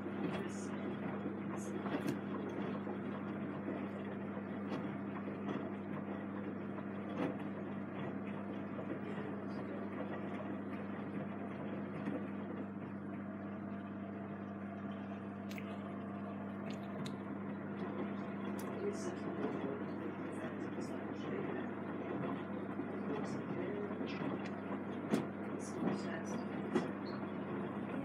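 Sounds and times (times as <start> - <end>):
steady hum: 0.0 - 28.0
water sloshing: 15.4 - 18.8.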